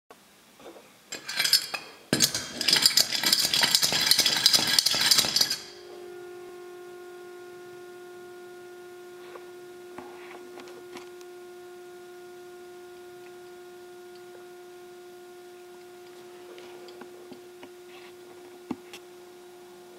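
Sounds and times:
metallic clattering of top plunger: 1.1 - 5.8
spinning top humming: 1.1 - 19.5.

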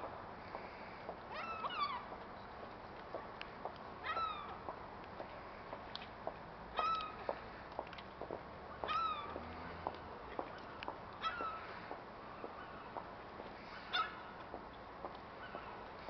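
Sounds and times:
gulls mewing calls: 1.3 - 2.2, 4.0 - 4.6, 6.7 - 7.3, 8.8 - 9.5, 10.4 - 14.4.

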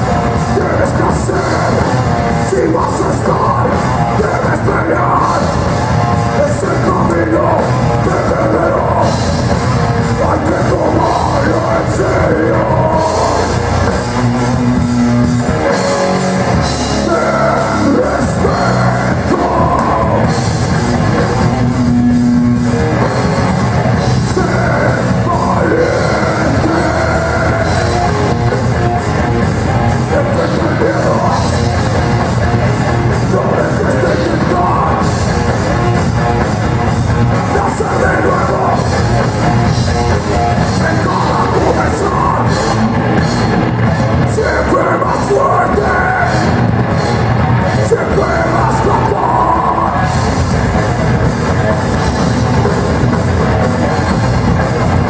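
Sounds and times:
sung and shouted vocals: 0.0 - 9.4, 10.0 - 14.1, 16.6 - 20.6, 23.8 - 28.6, 30.0 - 31.8, 32.9 - 35.4, 37.3 - 39.2, 40.5 - 43.0, 44.1 - 50.4
bass guitar: 0.0 - 55.0
distorted electric guitar: 0.0 - 55.0
drum kit: 0.0 - 55.0.

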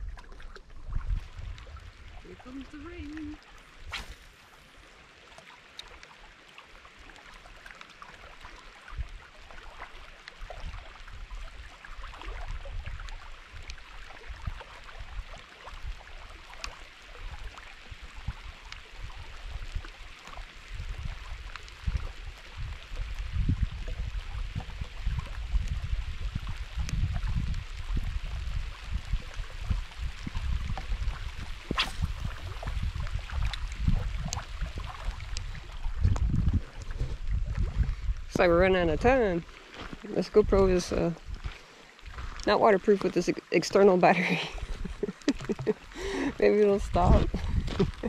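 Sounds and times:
wind buffeting microphone: 20.7 - 42.4, 44.3 - 48.0
raindrops ticking: 44.3 - 46.3.

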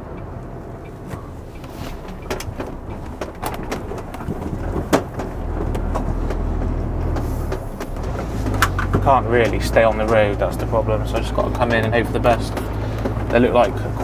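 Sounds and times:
lorry diesel engine running: 0.0 - 14.0
sharp knocks and clicks: 0.2 - 14.0.

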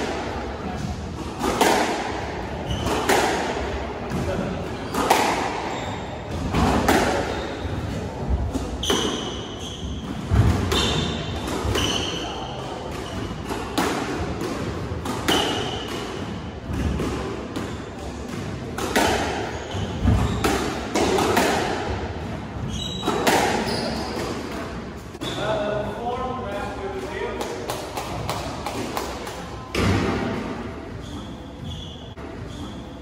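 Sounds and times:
sneakers squeaking on wooden floor: 2.6 - 3.2, 4.7 - 13.7, 19.4 - 20.9, 22.6 - 24.5, 25.2 - 25.6, 30.7 - 33.0
ball hitting court walls: 18.3 - 22.0, 22.7 - 24.4.

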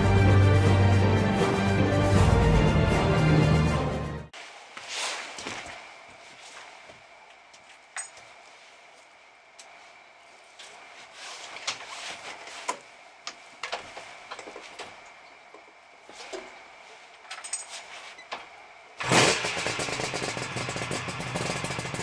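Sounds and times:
motorcycle engine running loudly: 19.0 - 22.0.

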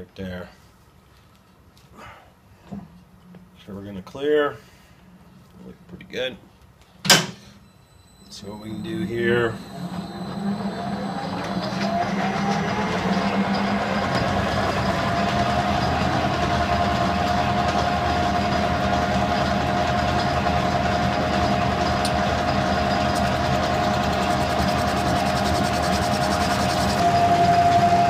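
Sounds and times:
metal lathe whining: 8.2 - 28.0.

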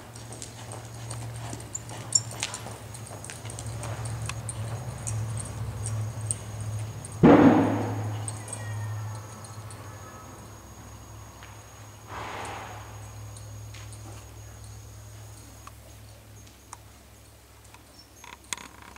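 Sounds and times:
steady low hum: 0.0 - 18.2
hoof falls on dirt: 6.8 - 8.3
loud breathy burst: 12.1 - 13.0.

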